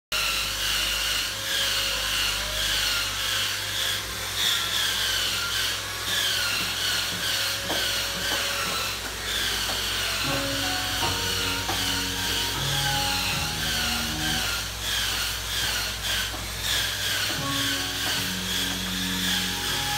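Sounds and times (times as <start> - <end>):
power tool whine: 0.2 - 19.9
music: 10.2 - 14.7, 17.3 - 19.9.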